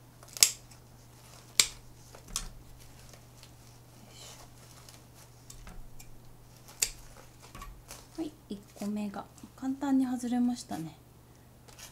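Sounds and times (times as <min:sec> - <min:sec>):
scissors snipping: 0:00.2 - 0:03.6, 0:04.3 - 0:09.0
roots and moss rustling: 0:00.2 - 0:09.7.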